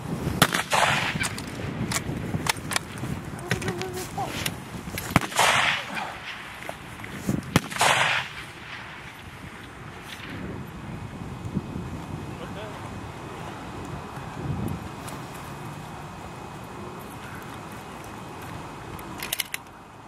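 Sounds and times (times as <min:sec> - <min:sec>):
rifle shots: 0:00.4 - 0:01.3, 0:05.1 - 0:06.5, 0:07.5 - 0:09.0
rushing echo: 0:07.5 - 0:09.2.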